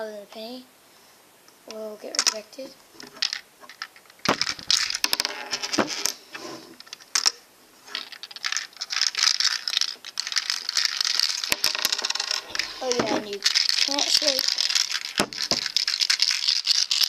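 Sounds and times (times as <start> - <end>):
coins rattling in plastic toy: 3.2 - 6.1, 8.0 - 17.0.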